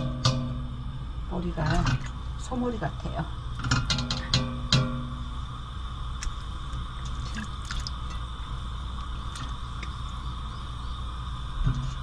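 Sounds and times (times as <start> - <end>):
background hum: 0.0 - 12.0
soft wet squishes: 6.2 - 10.2.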